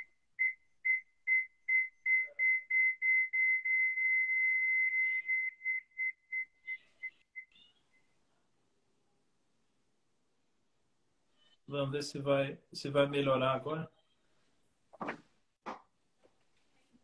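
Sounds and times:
audio feedback whistling: 0.0 - 8.2.

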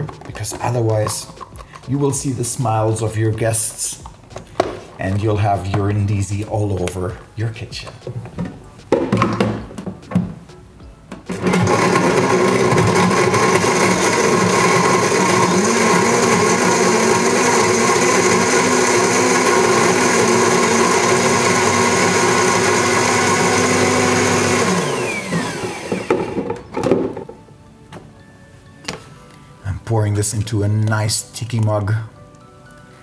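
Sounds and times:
blender crushing ice: 11.3 - 27.2.

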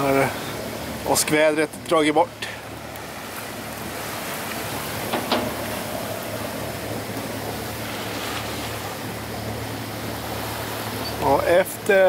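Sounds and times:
choppy sea water: 0.0 - 12.0
constant low hum: 0.0 - 12.0
short splashes or knocks: 4.4 - 9.1.

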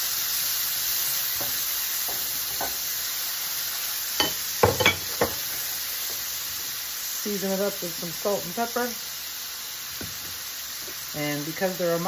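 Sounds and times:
onion sizzling in oil: 0.0 - 12.0
wooden spoon stirring in pan: 0.9 - 3.2
spoon knocking against pan: 1.4 - 2.8, 4.2 - 5.4.

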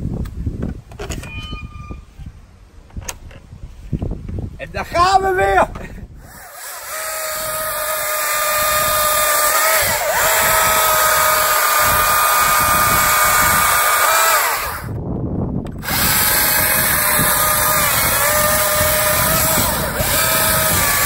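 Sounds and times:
chainsaw cutting wood: 6.2 - 15.0, 15.8 - 21.0.

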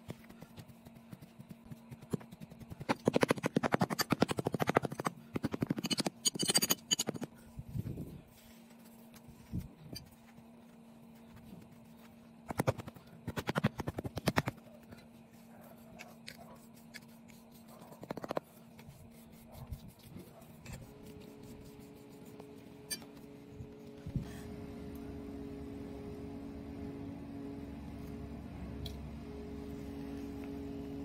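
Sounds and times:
sand pressed by hand: 7.2 - 24.2
trowel scraping sand: 16.0 - 23.3.

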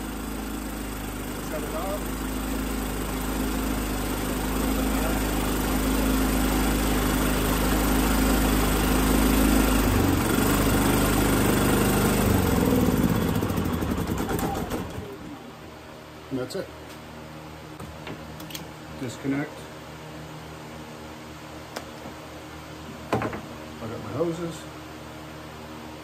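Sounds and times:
generator engine running: 0.0 - 15.6.

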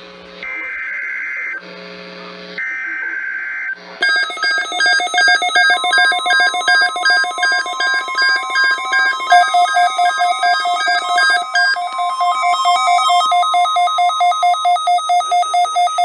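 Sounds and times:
rapid electronic alert beeps: 2.6 - 16.0
steady electronic tone: 4.0 - 16.0.

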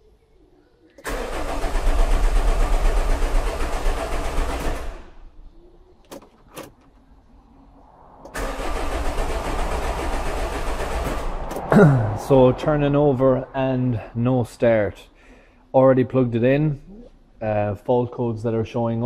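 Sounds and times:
diesel engine cranking: 1.0 - 5.2, 8.2 - 13.1.

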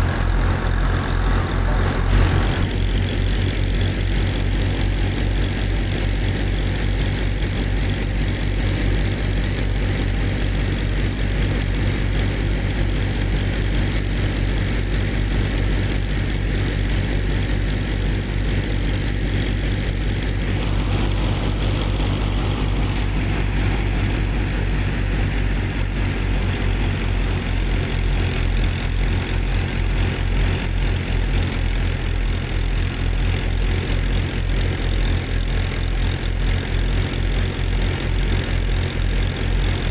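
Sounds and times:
small motor humming: 0.0 - 8.9, 17.0 - 39.9.

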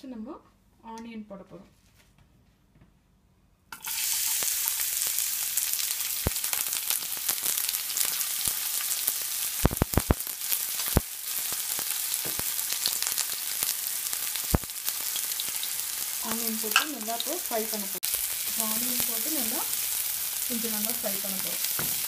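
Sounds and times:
onion sizzling in oil: 3.7 - 22.0.

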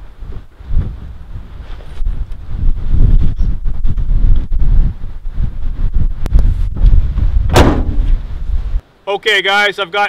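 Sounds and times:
wind buffeting microphone: 0.0 - 8.8.

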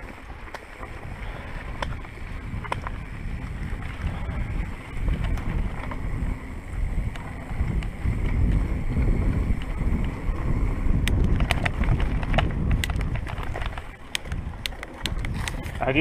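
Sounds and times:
wind rumbling on microphone: 0.0 - 16.0
sharp clicks and rattles: 10.9 - 16.0.

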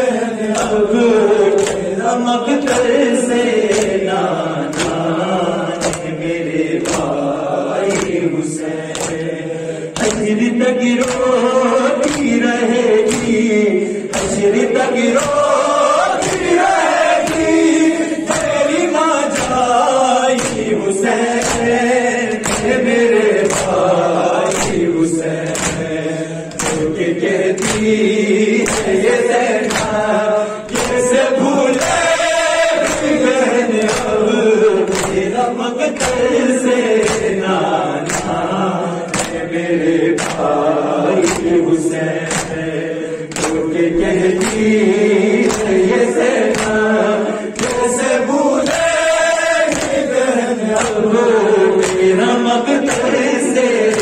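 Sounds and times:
group of men's voices: 0.0 - 54.0
man chanting into a microphone: 0.0 - 54.0
hand slaps on the chest: 5.7 - 6.2, 6.8 - 7.1, 8.9 - 9.3, 11.0 - 11.3, 22.3 - 22.7, 24.4 - 24.8, 25.4 - 25.8, 38.0 - 38.4, 39.1 - 39.4, 40.2 - 40.5, 41.2 - 41.5, 42.3 - 42.6, 49.7 - 50.0.

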